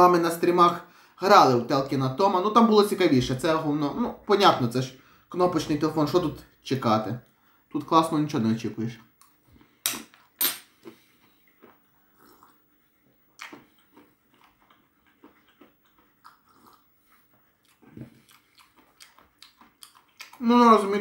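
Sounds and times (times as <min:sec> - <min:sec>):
crunching and chewing peanuts: 0:09.2 - 0:21.0.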